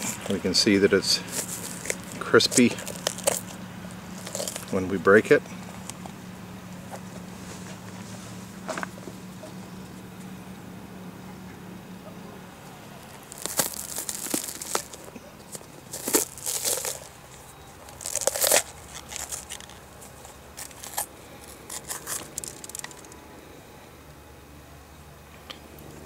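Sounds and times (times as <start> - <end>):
bell pepper cracking and tearing: 1.3 - 3.6, 4.2 - 4.8, 13.1 - 17.2, 17.8 - 23.2.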